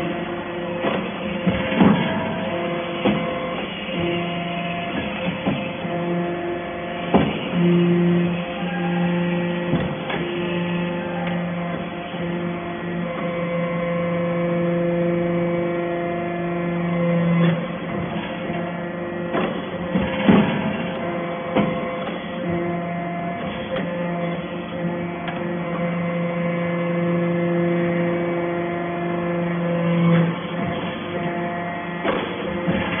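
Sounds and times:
hydraulic unit hum: 0.0 - 33.0
press knocks and clanks: 0.1 - 6.3, 6.9 - 12.5, 17.4 - 25.6, 30.1 - 33.0.

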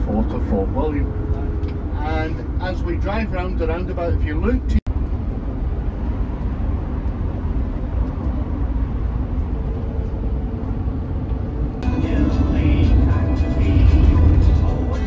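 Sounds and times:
vehicle road rumble: 0.0 - 15.0.

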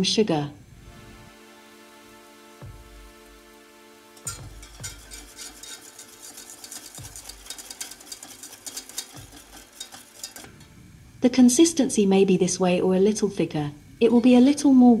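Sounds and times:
whisk scraping a metal pot: 4.2 - 10.7.

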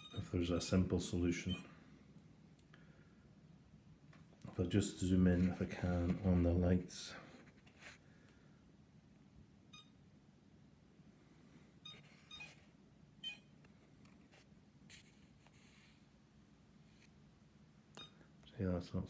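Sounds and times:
faint short beeps: 0.0 - 0.3.

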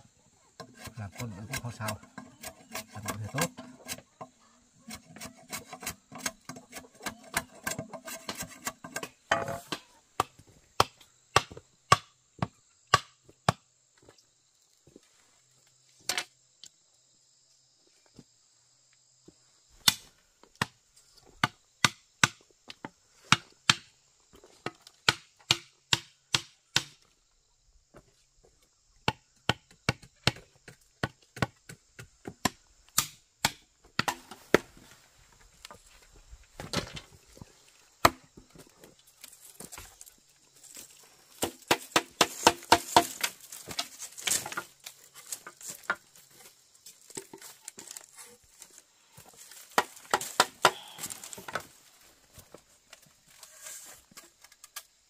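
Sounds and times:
insects chirring: 0.0 - 55.0
scraping bamboo: 0.5 - 9.8, 53.2 - 54.8
chopping blows on bamboo: 9.3 - 13.6, 19.8 - 20.8, 21.4 - 22.4, 25.0 - 27.0, 29.0 - 34.7, 41.4 - 43.8, 49.7 - 51.6.

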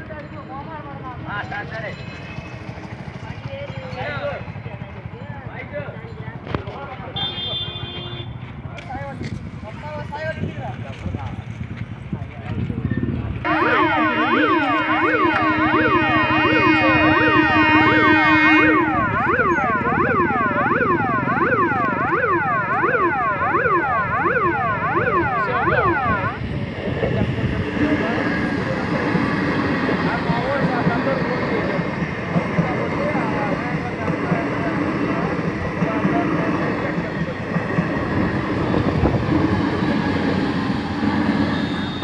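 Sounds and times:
train wheels rumbling on rails: 0.0 - 7.2, 8.0 - 21.2, 26.2 - 42.0
electronic warning siren wailing: 13.4 - 32.2.

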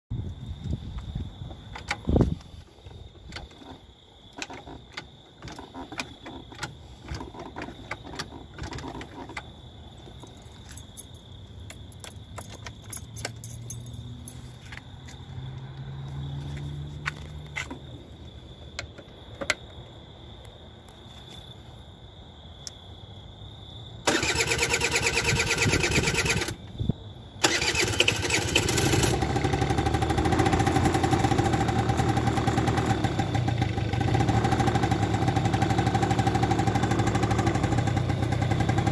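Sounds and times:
electric starter cranking: 24.1 - 26.6, 27.4 - 31.0
scooter engine idling: 27.4 - 38.9.

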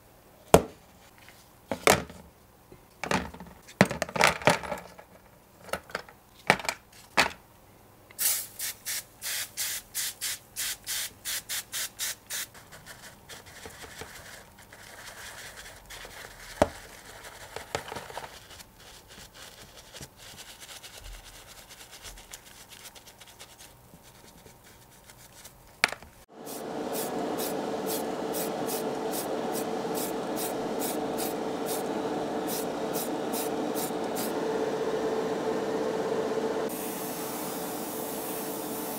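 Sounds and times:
spray can rattling: 8.2 - 16.2
extractor fan humming: 26.3 - 38.9.

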